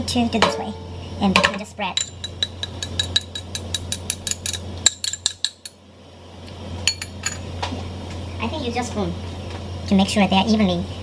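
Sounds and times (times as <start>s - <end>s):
steady low hum: 0.0s - 11.0s
metal spoon tapping ceramic bowl: 2.0s - 5.8s.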